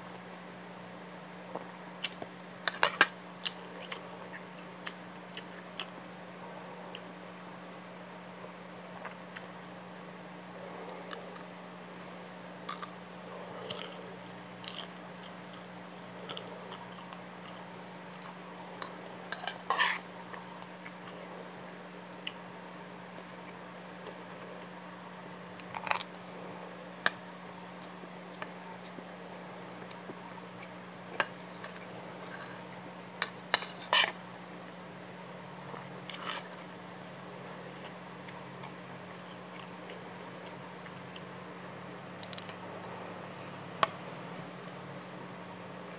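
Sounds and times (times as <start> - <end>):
steady low hum: 0.0 - 45.9
crunchy food chewing: 1.5 - 7.6, 8.4 - 21.5, 25.5 - 29.1, 35.6 - 44.8
person chewing and crunching: 11.0 - 11.5, 12.6 - 21.2, 25.6 - 26.2.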